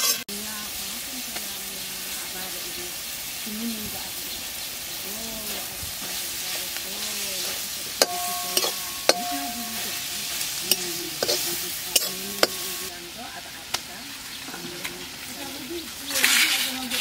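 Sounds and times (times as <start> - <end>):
oysters sizzling in a wok: 0.0 - 17.0
metal spatula knocking on pan: 8.0 - 10.0.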